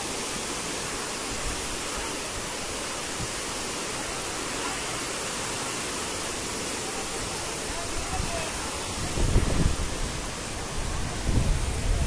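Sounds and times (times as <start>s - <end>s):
floodwater rushing: 0.0s - 12.0s.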